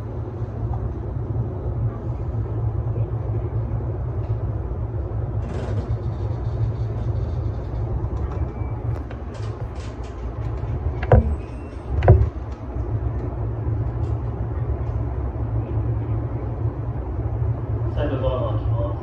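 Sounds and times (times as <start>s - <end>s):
electric train humming: 0.0s - 19.0s
loud knocks: 9.1s - 12.6s.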